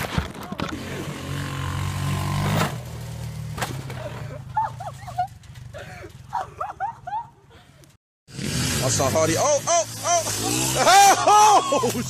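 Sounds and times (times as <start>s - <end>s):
atv engine running: 0.7s - 6.4s, 8.3s - 12.0s.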